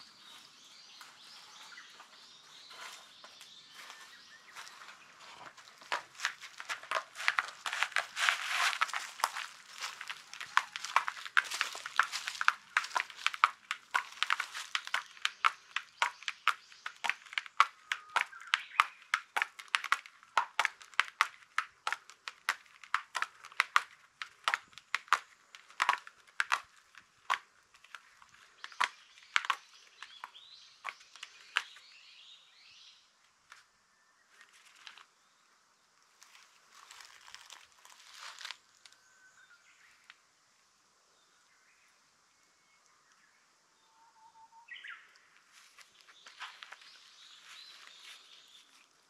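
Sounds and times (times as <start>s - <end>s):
cat claws scratching foam: 6.4s - 12.2s.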